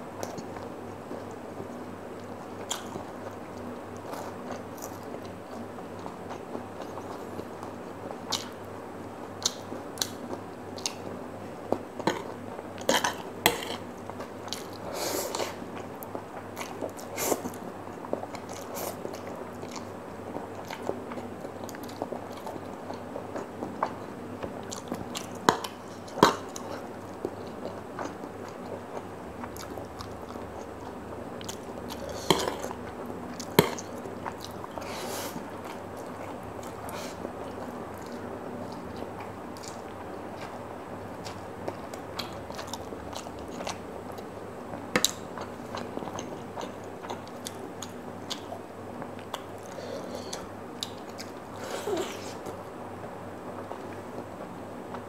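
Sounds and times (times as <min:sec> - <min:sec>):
person chewing noodles: 0:09.4 - 0:52.6.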